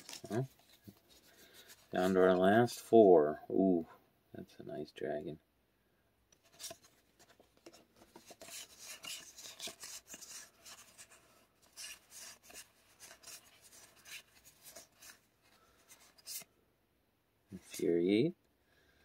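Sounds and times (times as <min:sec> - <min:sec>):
trading cards rubbing and flicking: 0:00.0 - 0:02.3, 0:06.4 - 0:16.5.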